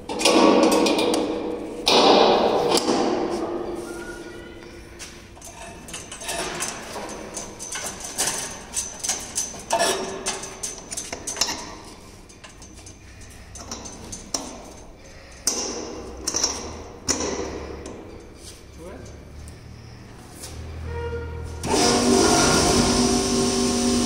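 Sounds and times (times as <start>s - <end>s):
metal clicks and clinks: 5.4s - 18.4s.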